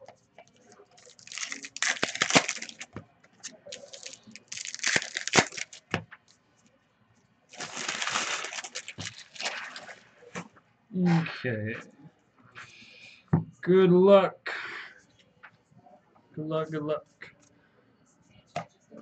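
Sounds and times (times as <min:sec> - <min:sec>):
card wrappers tearing and crinkling: 0:00.9 - 0:06.0, 0:07.5 - 0:10.0.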